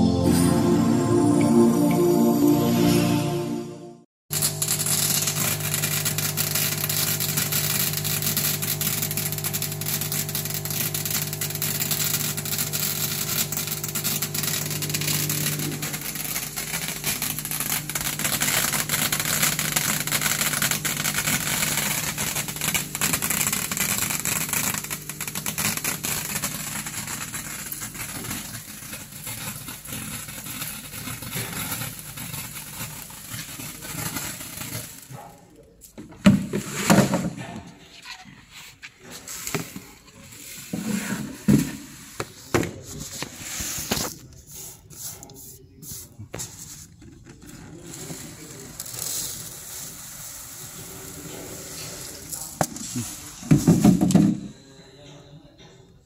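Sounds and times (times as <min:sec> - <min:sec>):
crushed glass streaming: 0:04.3 - 0:35.1, 0:48.3 - 0:53.2.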